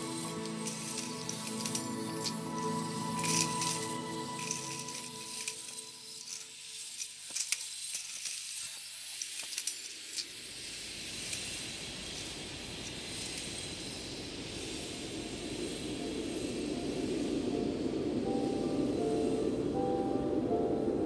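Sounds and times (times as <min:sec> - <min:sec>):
steady rushing noise: 0:10.5 - 0:21.0.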